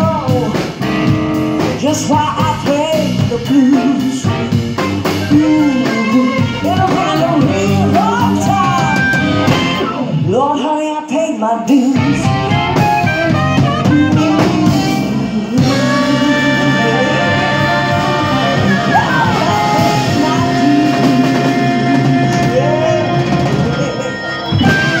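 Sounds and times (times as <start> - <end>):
live blues band playing: 0.0 - 25.0.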